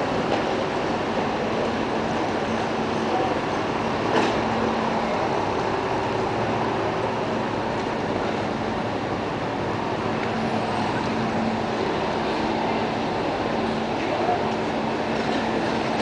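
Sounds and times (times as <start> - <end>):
rumbling hiss of railway station: 0.0 - 16.0.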